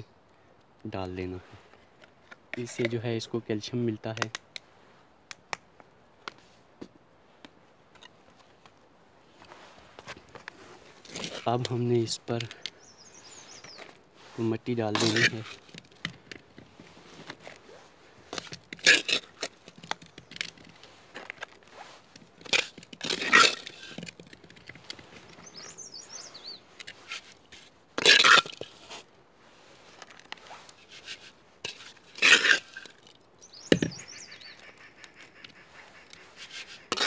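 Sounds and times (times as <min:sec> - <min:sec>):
trowel scraping soil: 0:09.4 - 0:15.9, 0:16.7 - 0:37.0.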